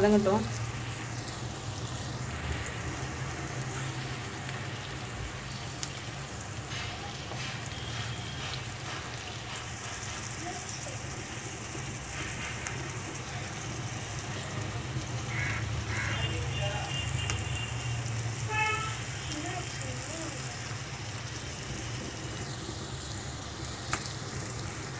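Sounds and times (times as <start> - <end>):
food sizzling in hot oil: 0.0 - 24.9.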